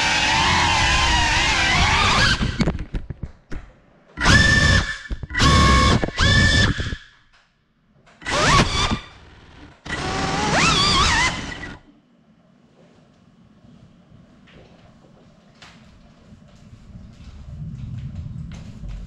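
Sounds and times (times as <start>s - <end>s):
drone motors whining: 0.0s - 2.7s, 4.2s - 7.0s, 8.2s - 11.8s.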